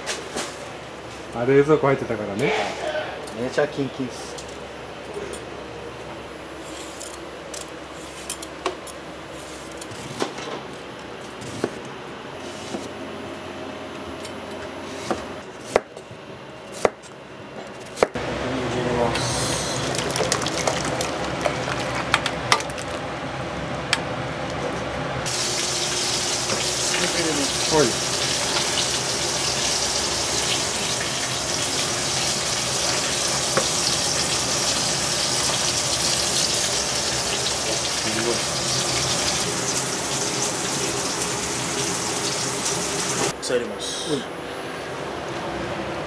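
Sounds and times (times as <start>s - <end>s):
tap water running: 19.8s - 22.1s, 25.3s - 43.3s.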